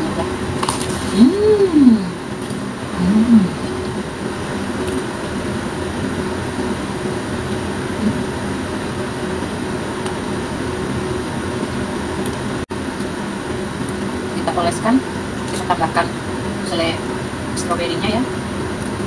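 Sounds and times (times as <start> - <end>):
machine hum and hiss: 0.0 - 19.0.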